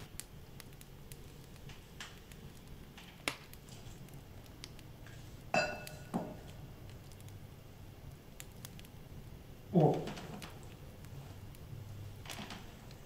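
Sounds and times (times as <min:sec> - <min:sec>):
vessel set down with ringing clink: 0:05.5 - 0:06.4.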